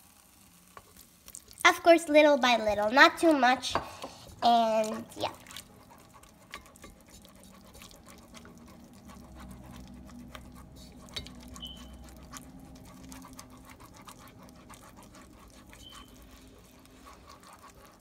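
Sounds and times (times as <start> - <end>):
utensil scraping a pot: 3.7 - 18.0.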